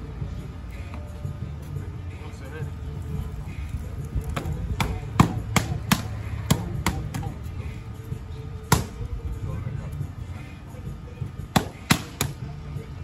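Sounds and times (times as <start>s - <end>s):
low steady rumble: 0.0s - 13.0s
boxing gloves hitting mitts: 4.2s - 7.4s, 8.6s - 9.0s, 11.5s - 12.4s.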